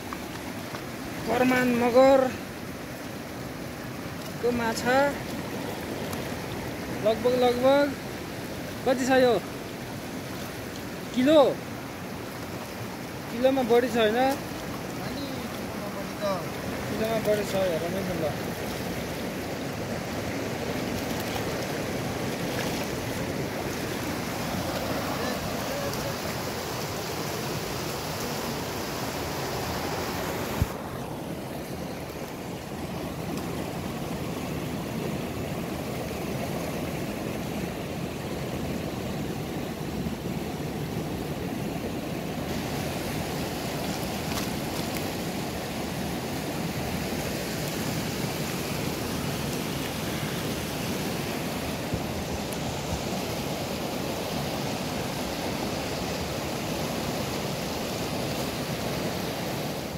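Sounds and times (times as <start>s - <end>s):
river rushing: 0.0s - 59.9s.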